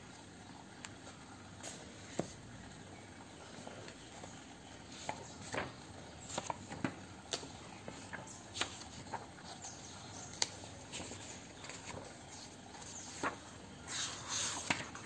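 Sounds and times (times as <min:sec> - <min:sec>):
paper pages turning: 0:03.5 - 0:15.0.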